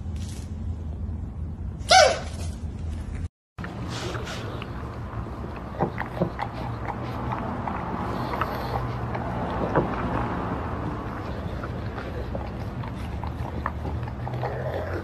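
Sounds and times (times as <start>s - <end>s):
dog mouth clicking against bowl: 4.6s - 15.0s.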